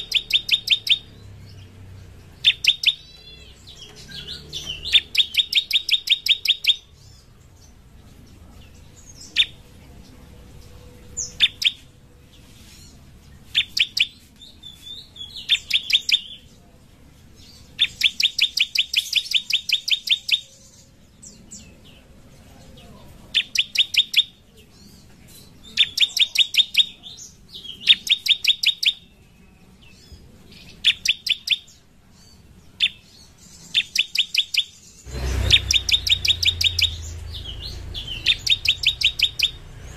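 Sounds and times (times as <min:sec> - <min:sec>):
bird drilling trill: 0:00.0 - 0:01.2, 0:02.4 - 0:06.9, 0:11.2 - 0:11.8, 0:33.8 - 0:39.7
high upslurred bird notes: 0:00.0 - 0:01.2, 0:02.4 - 0:06.9, 0:33.8 - 0:39.7.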